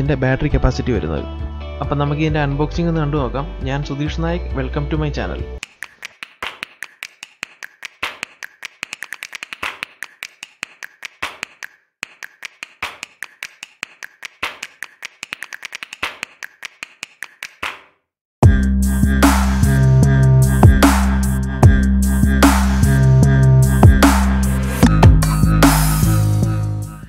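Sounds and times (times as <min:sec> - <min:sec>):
rapid sharp clicks: 0:05.6 - 0:17.9
loud electronic music: 0:18.4 - 0:27.0.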